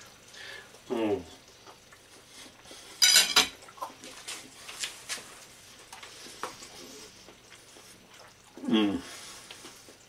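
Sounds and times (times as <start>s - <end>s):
knife clinking on china plate: 3.0s - 3.5s
person humming mm: 8.6s - 9.2s.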